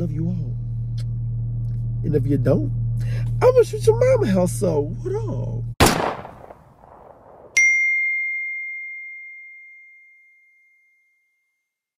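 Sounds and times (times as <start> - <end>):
bright ringing ding: 7.6 - 11.3.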